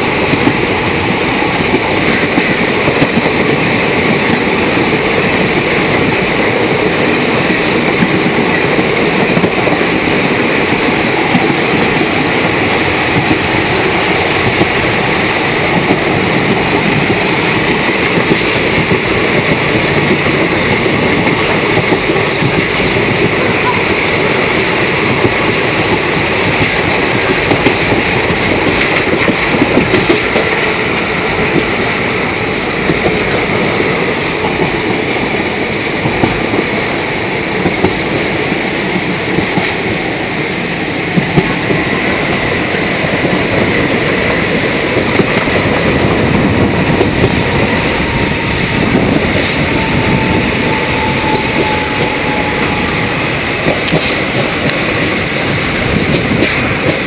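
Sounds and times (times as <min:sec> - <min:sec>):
rail-joint clicks: 0:00.0 - 0:57.0
train wheels rumbling on rails: 0:00.0 - 0:57.0.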